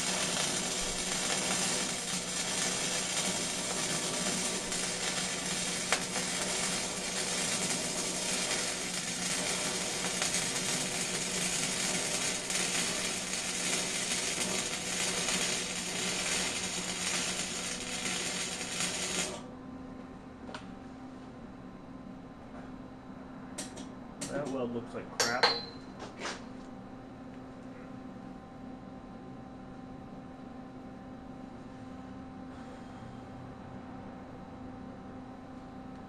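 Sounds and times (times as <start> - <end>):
welder arc crackling and sizzling: 0.0 - 19.4.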